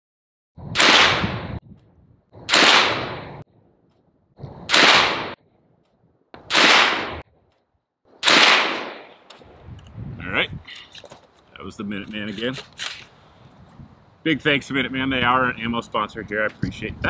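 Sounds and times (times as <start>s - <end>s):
pistol gunshots: 0.8s - 1.6s, 2.5s - 3.4s, 4.7s - 5.4s, 6.4s - 7.2s, 8.2s - 9.2s.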